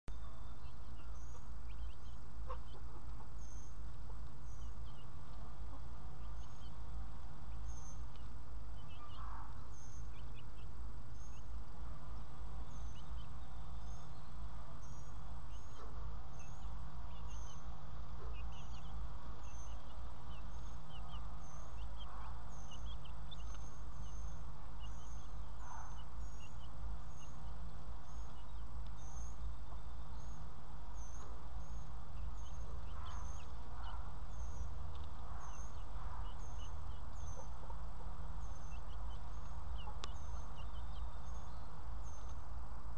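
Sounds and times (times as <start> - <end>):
steady low rumble: 0.1 - 42.9
chicks peeping and clucking: 14.0 - 29.0, 29.6 - 41.2.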